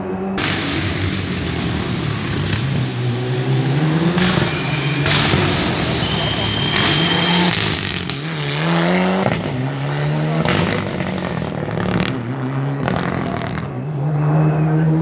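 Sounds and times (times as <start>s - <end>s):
rally car engine accelerating: 0.0s - 15.0s
sharp cracks at gear shifts: 0.4s - 8.6s.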